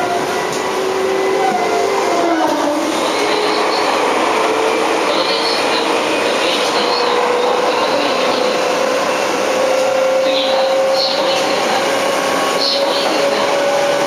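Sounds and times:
wheel and track rumble: 0.0 - 14.0.

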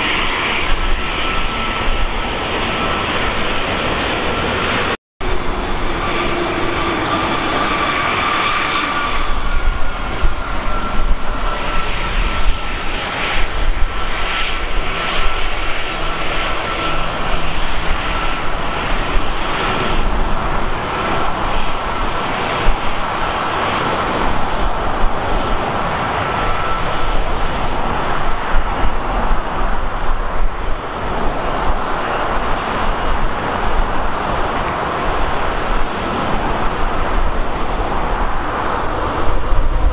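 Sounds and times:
airliner engines running: 0.0 - 39.9
high engine whine: 0.0 - 39.9.

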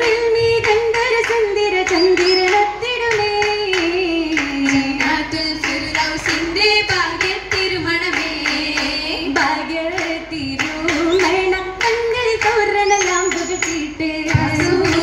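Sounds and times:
girls singing together: 0.0 - 15.0
hand clapping: 0.0 - 15.0.

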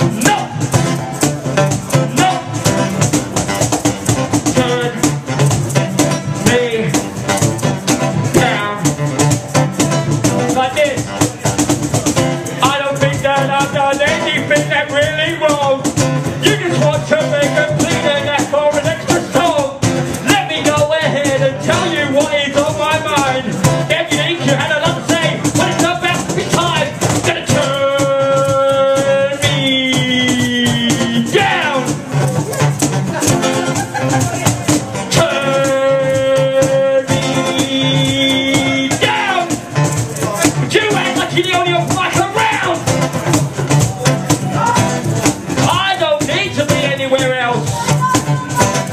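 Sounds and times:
rattling shaker beat: 0.0 - 48.9
strummed acoustic guitar: 0.0 - 48.9
person singing: 27.4 - 34.4, 35.1 - 39.7, 45.6 - 48.9.

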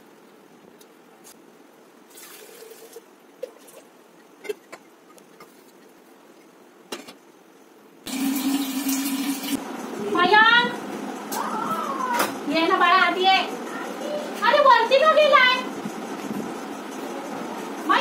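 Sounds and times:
tap water pouring into steel pot: 8.1 - 9.6.

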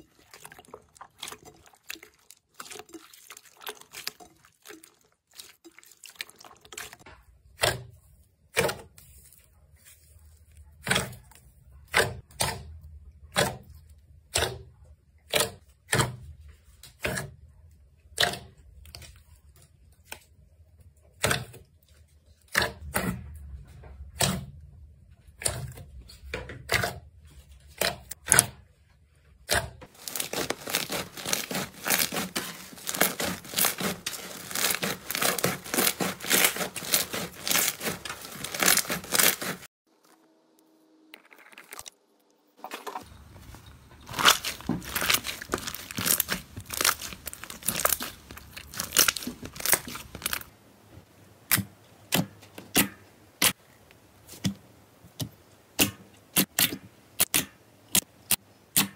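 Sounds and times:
rapid slime crackling: 0.0 - 7.0, 29.8 - 39.7, 43.0 - 50.5.

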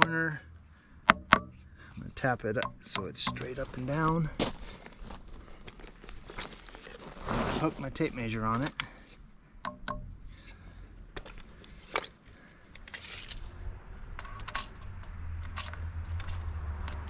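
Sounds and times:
low hum: 8.6 - 11.1
tape measure clicking and scraping: 14.2 - 17.0.

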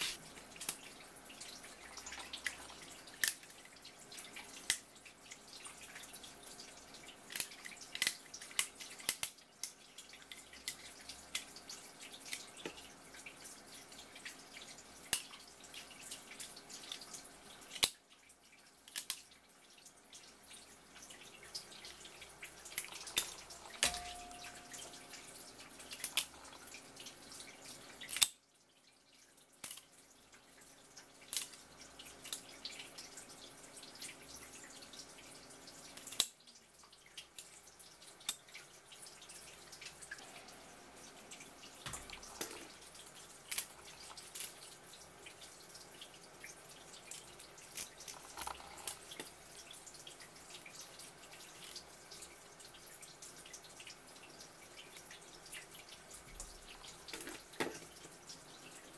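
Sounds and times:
kitchen shears snipping crab shell: 0.0 - 0.8.

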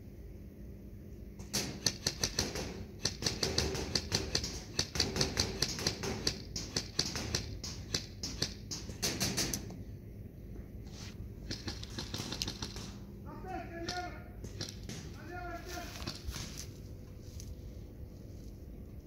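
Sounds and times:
airsoft guns firing: 1.5 - 9.7, 11.4 - 16.5.

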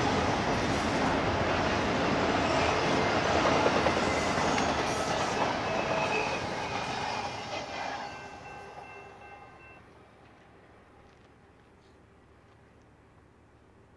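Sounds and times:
train wheels clattering on rails: 0.0 - 9.4.

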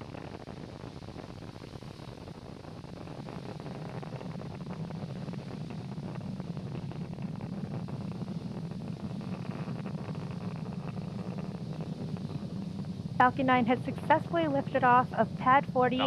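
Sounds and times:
rocket engines rumbling: 7.0 - 16.0.

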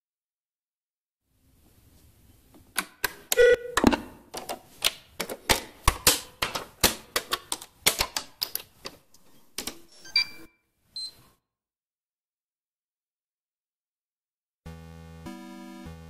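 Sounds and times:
switches and buttons clicking: 2.6 - 11.2.

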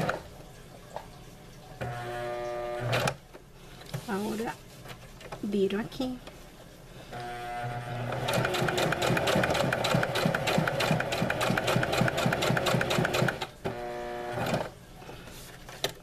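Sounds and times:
sewing machine stitching: 7.8 - 14.7.

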